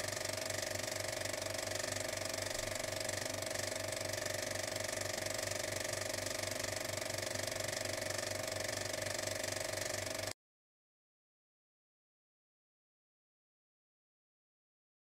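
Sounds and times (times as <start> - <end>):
machine running with fast pulse: 0.0 - 10.4.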